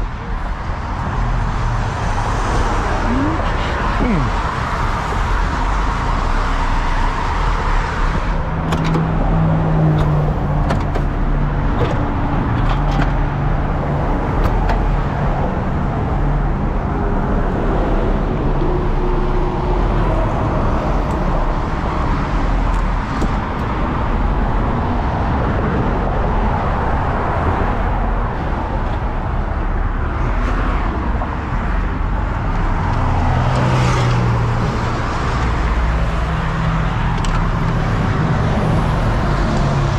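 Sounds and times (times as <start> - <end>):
heavy truck engines running: 0.0 - 26.9
vehicles rushing past: 0.0 - 39.9.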